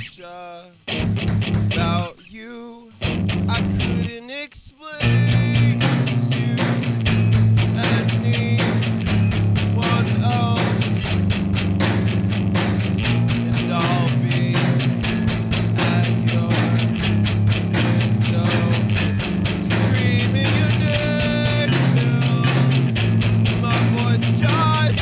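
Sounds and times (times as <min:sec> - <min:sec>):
rock song: 0:00.8 - 0:04.2, 0:05.0 - 0:25.0
bass line: 0:00.9 - 0:02.1, 0:03.0 - 0:04.1, 0:05.0 - 0:25.0
fast drum beat: 0:05.1 - 0:25.0.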